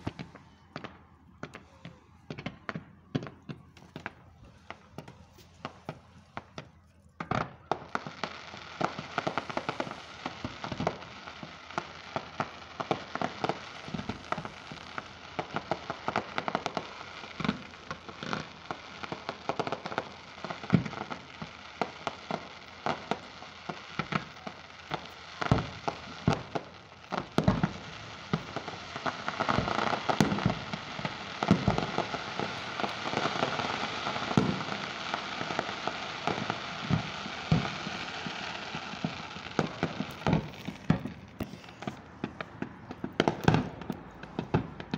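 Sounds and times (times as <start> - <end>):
fireworks bangs: 0.0 - 44.9
crackle of bursting shells: 35.5 - 44.9.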